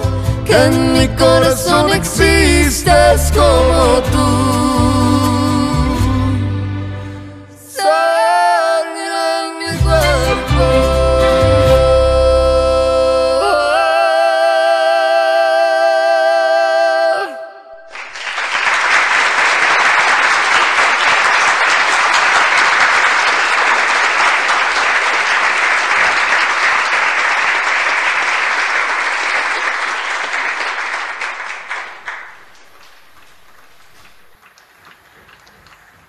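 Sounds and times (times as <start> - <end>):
crowd applauding: 17.8 - 36.0.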